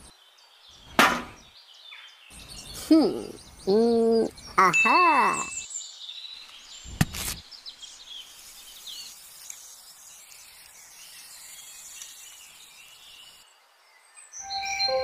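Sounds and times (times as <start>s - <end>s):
bird chirps: 0.0s - 15.0s
steady outdoor hiss: 0.0s - 15.0s
music with held tones: 14.4s - 15.0s.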